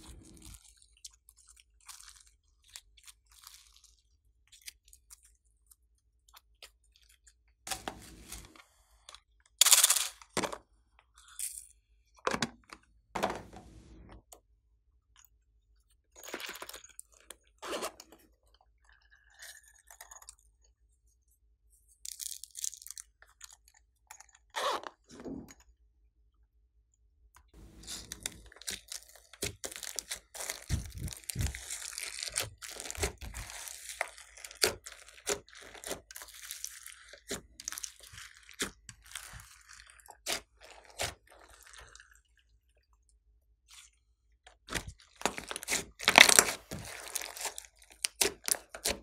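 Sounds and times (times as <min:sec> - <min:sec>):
slime crackling stickily: 0:27.7 - 0:39.9, 0:45.2 - 0:49.0.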